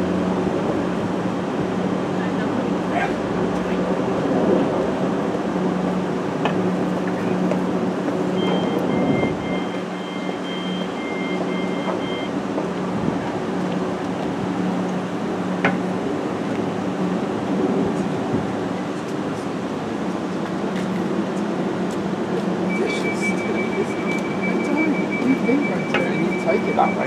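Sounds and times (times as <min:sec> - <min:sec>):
train equipment low hum: 0:00.0 - 0:27.0
electronic two-tone beeping: 0:08.4 - 0:12.3, 0:22.7 - 0:27.0.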